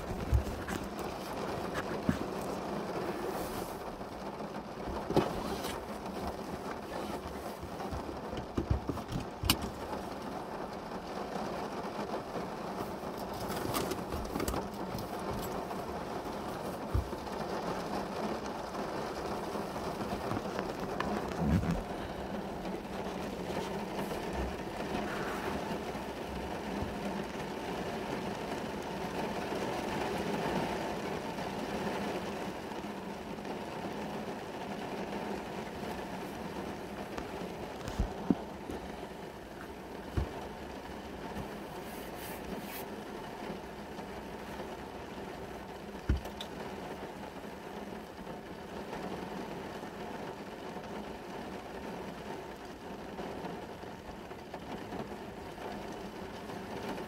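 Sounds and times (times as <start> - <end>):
heavy rain on a car roof: 0.0 - 57.0
raindrops tapping on glass: 4.0 - 41.8, 42.4 - 49.2.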